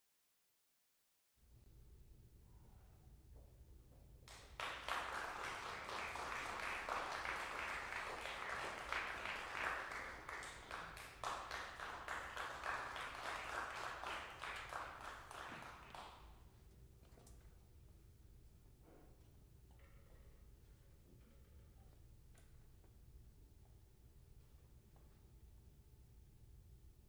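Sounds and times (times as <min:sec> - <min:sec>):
audience applauding: 0:04.3 - 0:16.2.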